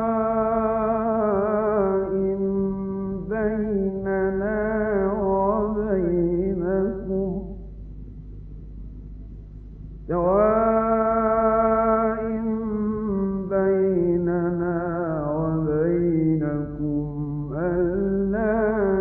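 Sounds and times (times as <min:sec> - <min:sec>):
man chanting melodically: 0:00.0 - 0:07.7, 0:10.1 - 0:19.0.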